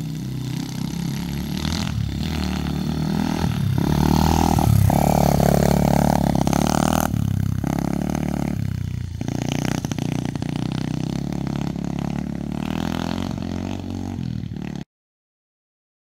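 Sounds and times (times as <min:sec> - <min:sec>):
motorbike engine riding away: 0:00.0 - 0:14.8.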